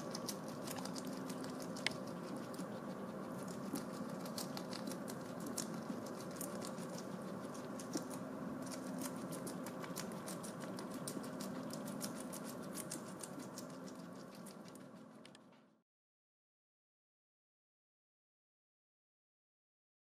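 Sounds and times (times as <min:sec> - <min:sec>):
guinea pig chewing food: 0:00.0 - 0:15.8.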